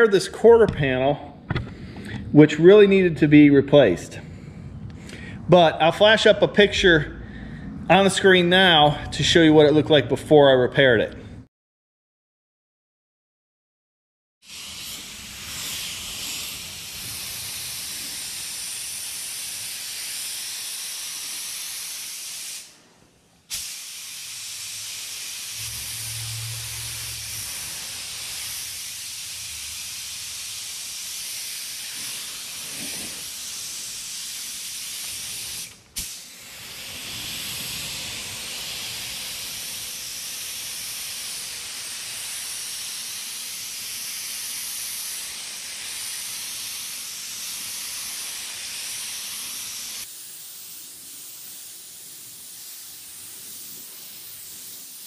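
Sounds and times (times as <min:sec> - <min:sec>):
paint spray gun hissing: 0:14.4 - 0:22.7, 0:23.5 - 0:55.0.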